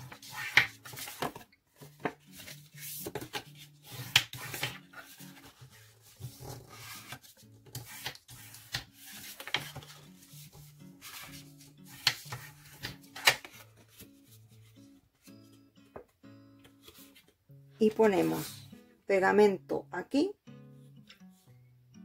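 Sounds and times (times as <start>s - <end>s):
paper being folded and creased: 0.0s - 14.3s.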